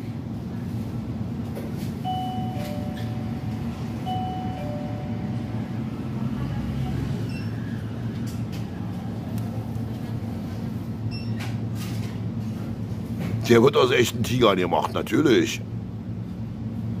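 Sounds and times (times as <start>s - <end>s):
steady low hum: 0.0s - 17.0s
two-note door chime: 2.0s - 5.4s.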